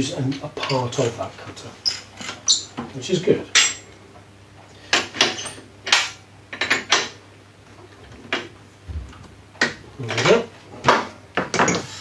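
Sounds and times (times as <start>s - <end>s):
metal tools clinking: 3.5s - 3.9s
soft low thump: 8.9s - 9.4s.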